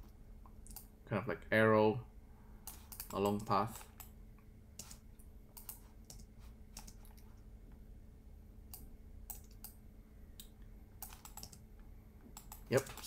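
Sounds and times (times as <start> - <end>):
faint low hum: 0.0 - 13.0
mouse and keyboard clicks: 10.4 - 11.6.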